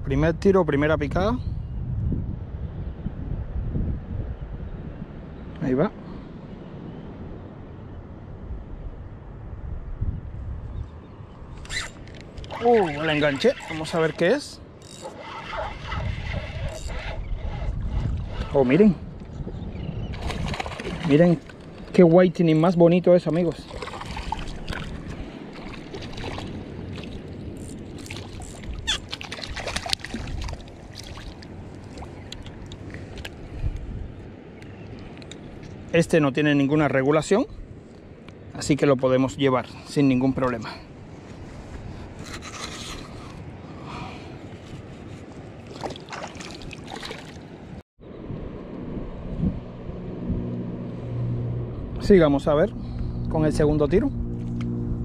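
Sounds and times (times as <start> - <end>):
wind on microphone: 0.0 - 22.2, 23.5 - 35.9, 40.2 - 55.0
hands scraping fishing line: 11.6 - 18.9, 41.6 - 43.4
water splashing and sloshing: 11.6 - 22.6, 23.2 - 35.9, 44.2 - 47.8
low motor hum: 12.3 - 22.0, 48.0 - 55.0.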